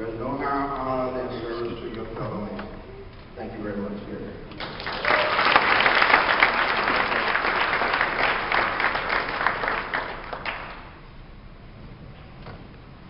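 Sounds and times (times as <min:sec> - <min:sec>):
room murmur: 0:00.0 - 0:13.0
audience applauding: 0:04.6 - 0:11.0.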